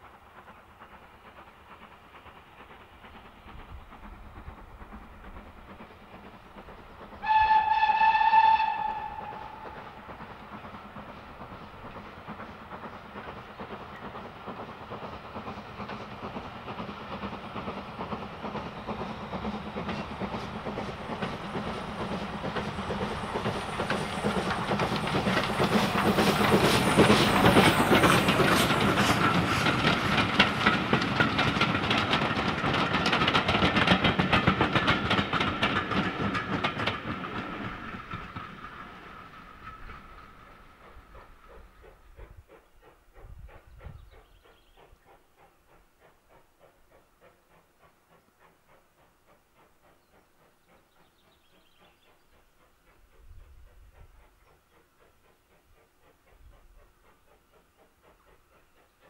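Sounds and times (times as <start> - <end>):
passing train noise: 0.0 - 59.0
steam locomotive whistle: 7.2 - 10.0.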